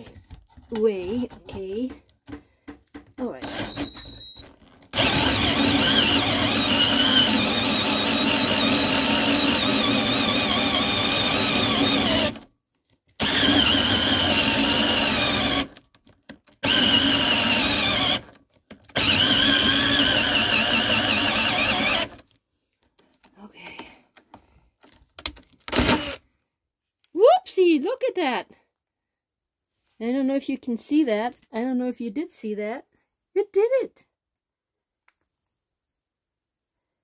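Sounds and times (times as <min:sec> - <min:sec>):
drill motor whining: 0:03.4 - 0:12.4, 0:13.2 - 0:15.8, 0:16.6 - 0:22.2, 0:25.7 - 0:26.2
hole saw cutting wood: 0:04.9 - 0:12.4, 0:13.2 - 0:15.8, 0:16.6 - 0:18.4, 0:19.0 - 0:22.2.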